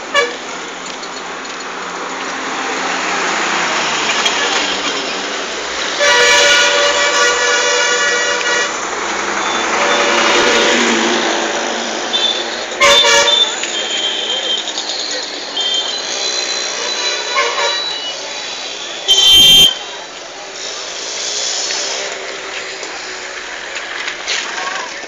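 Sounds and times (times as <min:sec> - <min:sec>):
street traffic: 0:00.0 - 0:25.0
vehicle horn: 0:00.1 - 0:00.4, 0:06.0 - 0:08.8, 0:09.4 - 0:11.0, 0:12.1 - 0:14.6, 0:15.6 - 0:18.1, 0:18.8 - 0:20.0.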